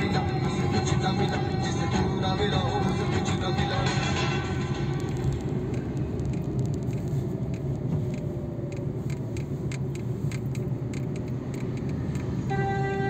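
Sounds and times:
car engine and road rumble: 0.0s - 13.0s
light ticks and rattles: 5.0s - 12.4s.

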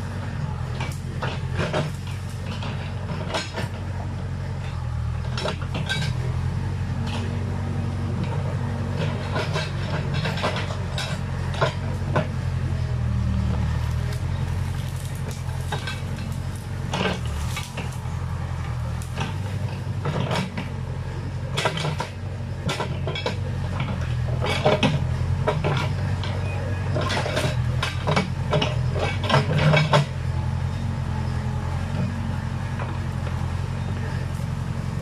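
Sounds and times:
diesel engine under load: 0.0s - 35.0s
sharp clanks and cracks: 9.0s - 12.3s, 13.9s - 20.7s, 21.5s - 30.2s.

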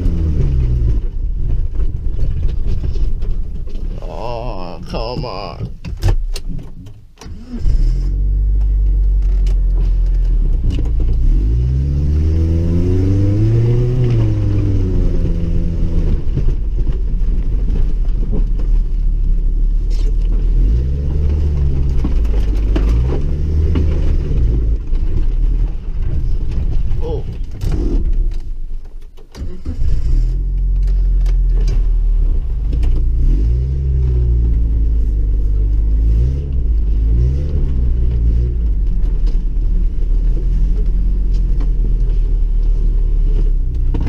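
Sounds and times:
car engine revving inside cabin: 10.4s - 16.5s, 20.2s - 24.9s, 29.7s - 44.0s.

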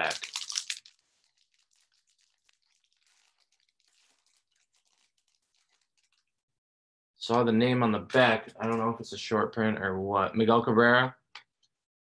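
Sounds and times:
foil wrapper crinkling and tearing: 0.0s - 6.3s.

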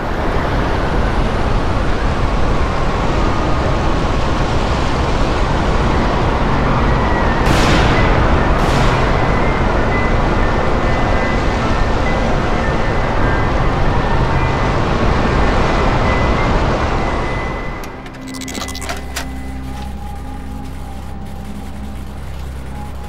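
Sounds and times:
deep stormy wind rumble: 0.0s - 17.8s.

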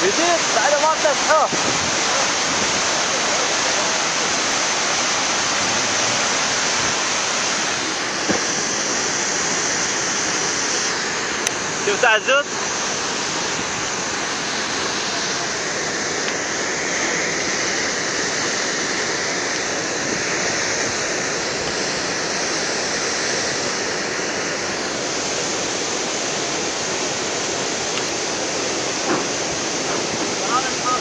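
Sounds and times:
floodwater rushing: 0.0s - 31.0s.

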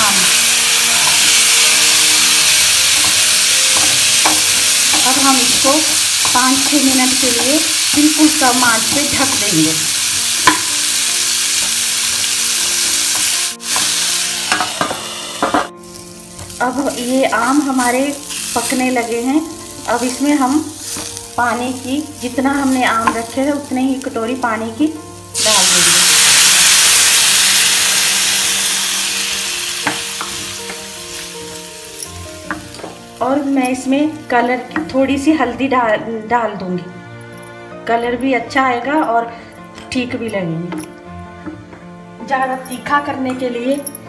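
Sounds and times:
food sizzling in hot oil: 0.0s - 34.7s
spatula knocking pan: 10.4s - 10.7s.

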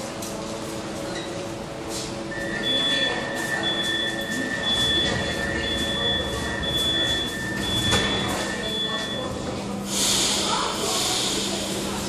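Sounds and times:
low train hum: 0.0s - 12.0s
door warning buzzer: 2.6s - 9.3s.

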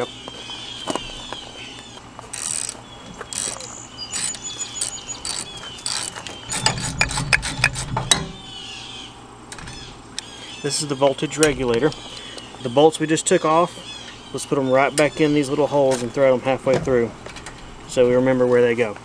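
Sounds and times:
ratchet wrench clicking: 2.3s - 8.2s.

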